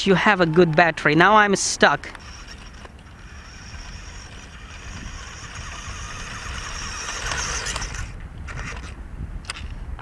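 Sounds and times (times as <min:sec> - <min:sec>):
toy car electric motor whining: 0:02.1 - 0:09.0
wind rumble on microphone: 0:02.3 - 0:10.0.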